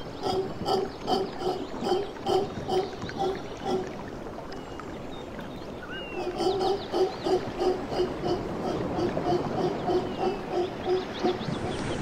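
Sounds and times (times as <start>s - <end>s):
howler monkeys howling: 0.1s - 3.9s, 6.0s - 11.8s.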